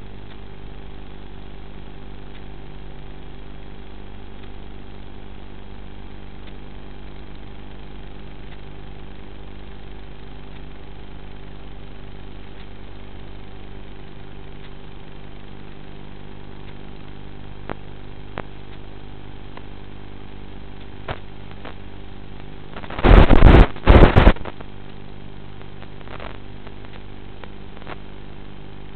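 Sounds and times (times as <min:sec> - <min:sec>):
steady multi-pitch hum: 0:00.0 - 0:28.9
faint clicks: 0:25.6 - 0:28.1.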